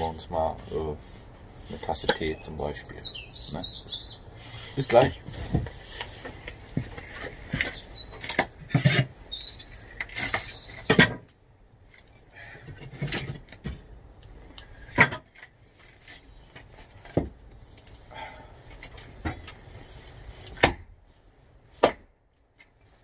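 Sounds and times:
birds chirping: 0.0s - 12.6s
wood cracking and knocking: 5.2s - 18.1s, 18.7s - 19.6s, 20.4s - 20.9s.

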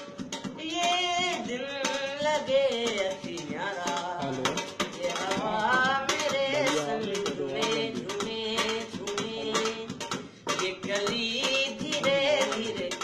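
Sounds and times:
steel plate drummed with fingers: 0.0s - 13.0s
wordless vocal tune: 4.2s - 9.6s.

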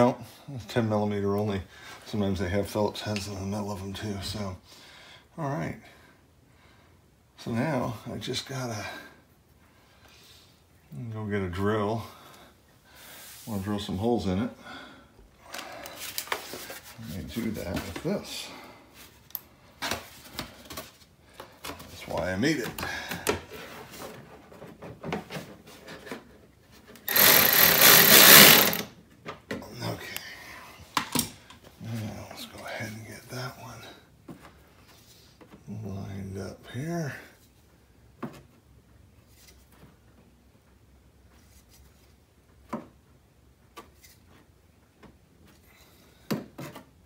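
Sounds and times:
cordless drill running: 27.1s - 28.9s.

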